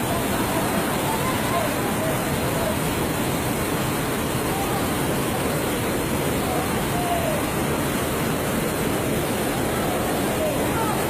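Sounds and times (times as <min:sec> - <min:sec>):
water rushing loudly: 0:00.0 - 0:11.0.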